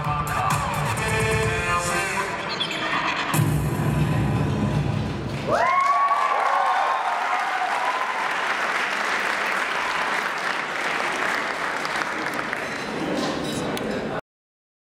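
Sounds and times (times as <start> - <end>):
audience clapping: 5.3 - 13.1.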